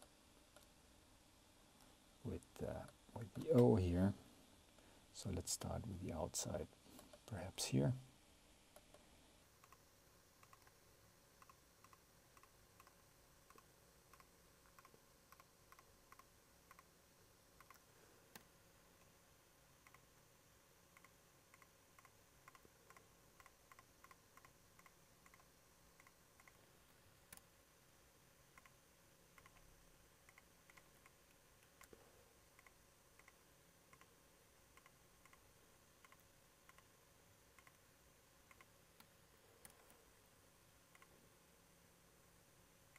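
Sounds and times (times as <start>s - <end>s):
faint steady hum: 0.0s - 42.9s
computer mouse clicks: 9.6s - 10.8s, 11.4s - 16.9s, 17.6s - 19.2s, 19.8s - 20.1s, 20.9s - 26.6s, 27.3s - 27.5s, 28.5s - 34.1s, 34.7s - 40.0s, 40.9s - 41.2s.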